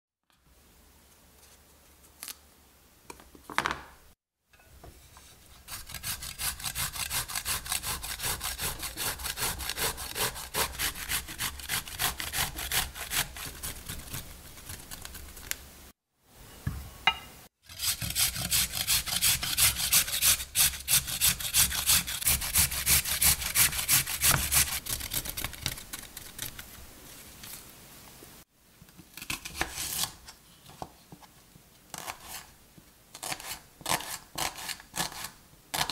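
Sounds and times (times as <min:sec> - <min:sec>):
vegetables scraping on metal grater: 0:05.5 - 0:14.8, 0:17.7 - 0:25.2.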